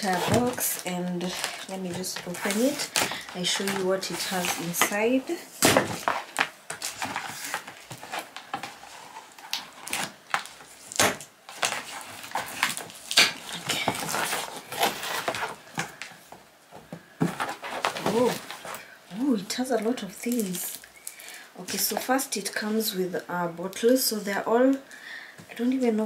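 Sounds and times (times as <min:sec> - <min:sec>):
cardboard flaps scraping: 0:00.0 - 0:16.0, 0:16.9 - 0:18.9
packaging taps and rustles: 0:00.0 - 0:18.8.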